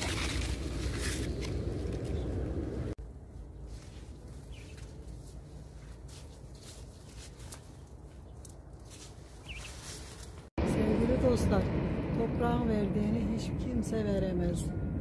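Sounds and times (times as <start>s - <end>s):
bird chirping: 4.4s - 5.0s, 9.4s - 10.0s
low steady rumble: 10.3s - 15.0s.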